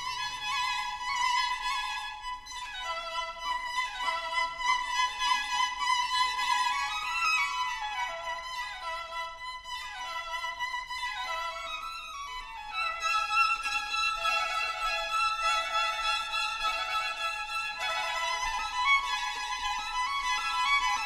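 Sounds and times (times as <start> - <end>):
violin playing sliding melody: 0.0 - 21.0.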